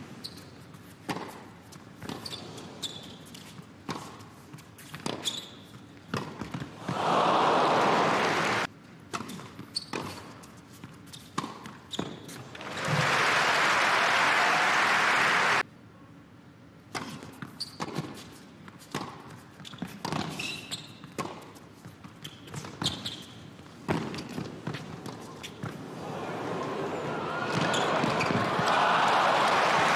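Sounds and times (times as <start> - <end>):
crowd applause: 6.8 - 8.7, 12.6 - 15.6, 26.0 - 29.9
tennis ball bouncing: 27.5 - 28.7.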